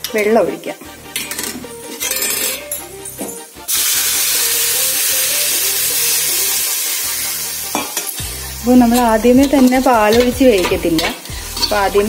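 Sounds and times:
water sizzling in hot pan: 0:03.4 - 0:12.0.

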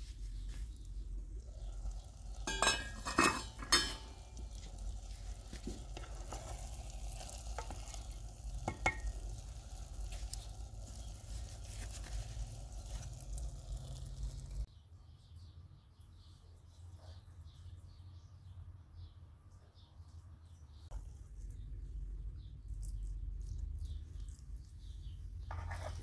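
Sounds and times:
spoon stirring thick mixture: 0:00.3 - 0:14.7, 0:25.4 - 0:26.0
food sizzling: 0:00.8 - 0:14.7
knock on pot: 0:08.7 - 0:09.1.

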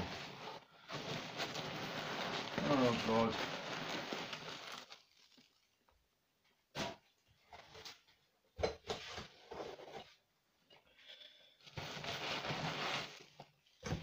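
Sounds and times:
packing peanuts rustling: 0:00.0 - 0:05.7.

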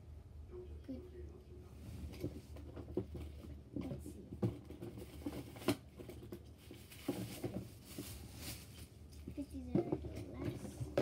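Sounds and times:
toys clattering in plastic bin: 0:02.5 - 0:11.0.

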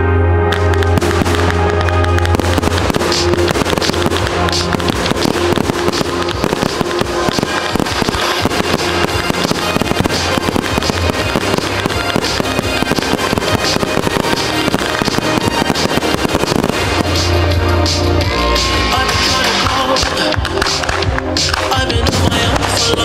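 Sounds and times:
music with low bass line: 0:00.0 - 0:23.0
fireworks bursting and crackling: 0:00.5 - 0:23.0.

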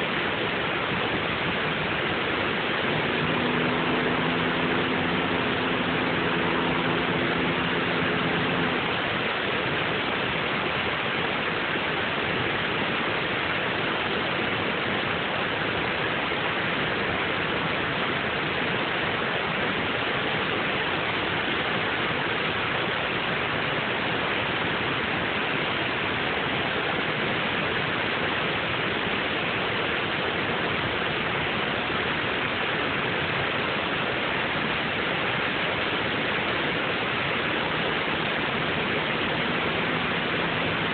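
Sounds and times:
low steady hum: 0:00.0 - 0:40.9
water rushing over spillway: 0:00.0 - 0:40.9.

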